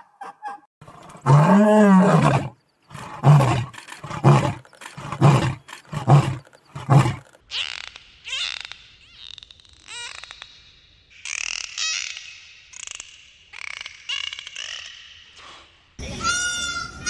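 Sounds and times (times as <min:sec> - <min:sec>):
lion roaring: 0:00.8 - 0:07.3.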